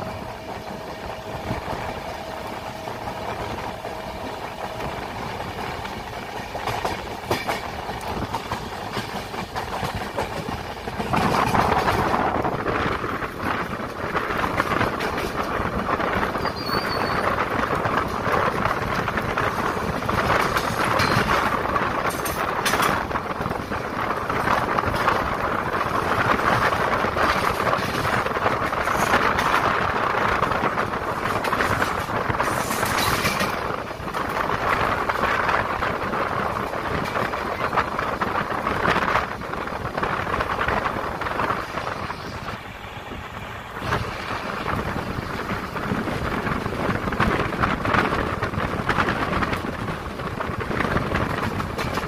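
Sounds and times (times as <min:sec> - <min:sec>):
rushing air: 0:00.0 - 0:16.4, 0:17.2 - 0:52.0
train wheels rolling on rails: 0:00.0 - 0:52.0.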